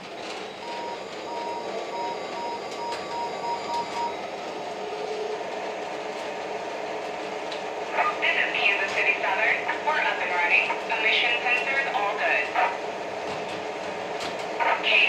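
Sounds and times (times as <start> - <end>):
model locomotive sound running: 0.0 - 15.0
short beeps: 0.6 - 4.2.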